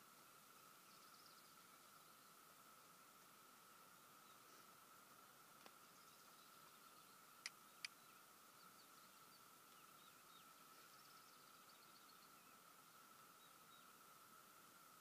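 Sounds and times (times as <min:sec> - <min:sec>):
faint bird chirps: 0:00.0 - 0:02.6, 0:03.7 - 0:05.0, 0:05.7 - 0:15.0
sharp clicks: 0:07.4 - 0:08.0.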